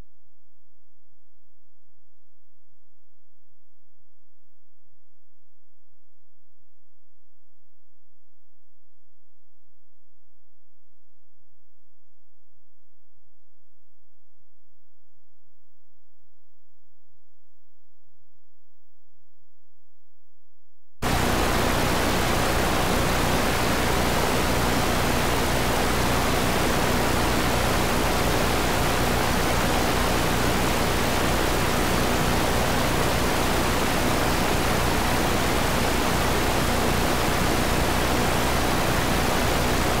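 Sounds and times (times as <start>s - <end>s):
blank videotape static hiss: 21.0s - 40.0s.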